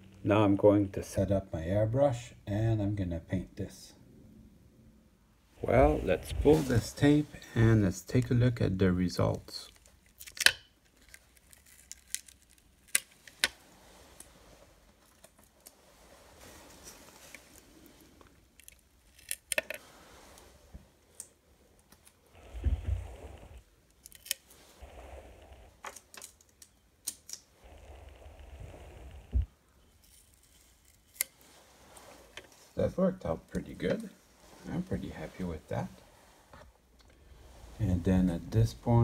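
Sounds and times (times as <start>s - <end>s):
rustling: 5.5s - 8.3s, 9.2s - 32.8s
masking tape being peeled: 9.7s - 13.6s, 18.5s - 19.8s, 23.9s - 25.0s, 30.0s - 31.5s.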